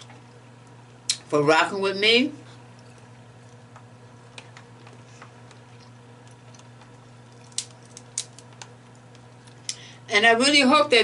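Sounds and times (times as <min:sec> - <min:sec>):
steady low hum: 0:00.0 - 0:11.0
crab shell cracking by hand: 0:03.6 - 0:09.8.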